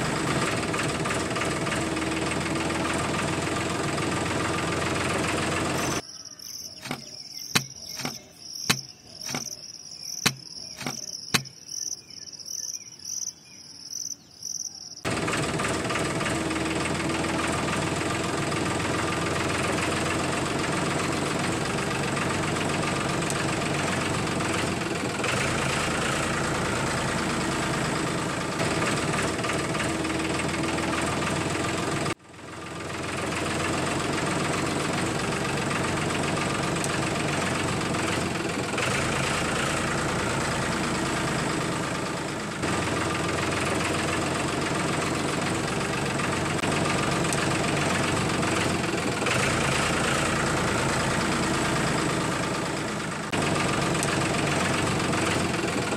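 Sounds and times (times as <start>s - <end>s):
tractor engine idling: 0.0s - 55.9s
cricket chirping: 6.0s - 15.1s
sharp clicks: 6.6s - 12.0s.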